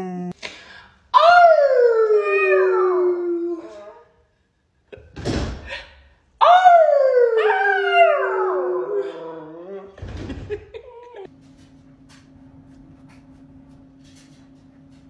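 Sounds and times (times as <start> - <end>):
woman howling: 1.2 - 4.1, 6.4 - 10.0
puppy howling: 6.4 - 10.0.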